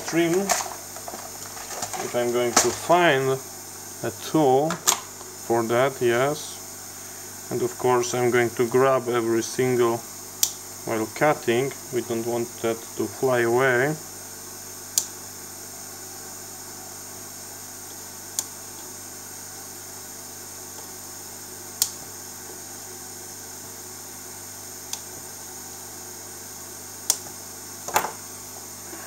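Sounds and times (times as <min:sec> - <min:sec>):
faint steady hiss: 0:00.0 - 0:29.0.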